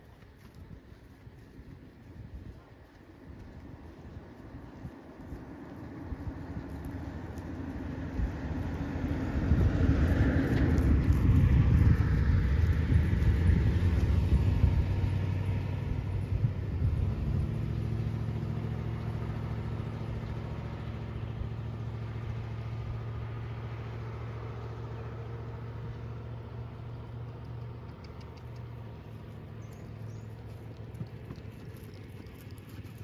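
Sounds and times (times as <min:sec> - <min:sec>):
engine running with low rumble: 0:00.0 - 0:33.0.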